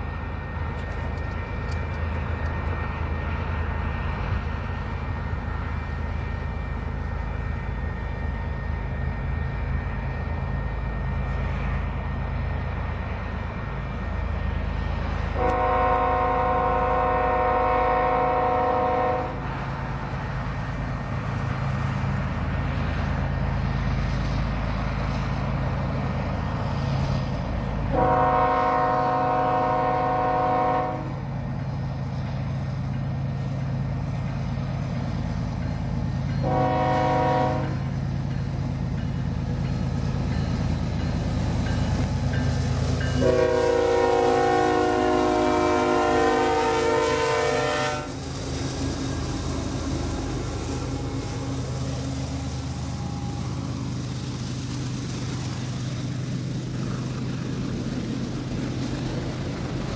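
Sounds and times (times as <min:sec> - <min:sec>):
locomotive engine rumble: 0:00.0 - 0:59.9
train cars rolling past: 0:00.0 - 0:59.9
train air horn blasts: 0:15.2 - 0:19.5, 0:27.9 - 0:31.2, 0:36.4 - 0:37.9, 0:43.0 - 0:50.2.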